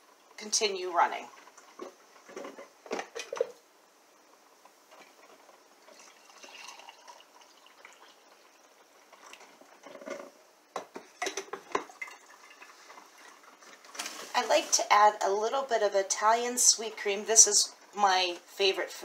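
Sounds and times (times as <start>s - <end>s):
coffee pouring into mug: 4.9s - 14.1s
glass carafe clattering: 9.8s - 12.3s.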